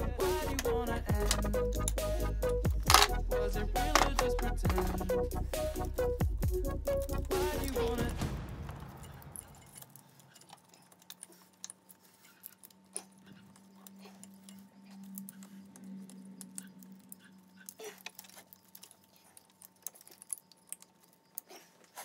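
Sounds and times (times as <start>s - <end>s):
low hum: 0.0s - 11.1s, 12.9s - 19.0s.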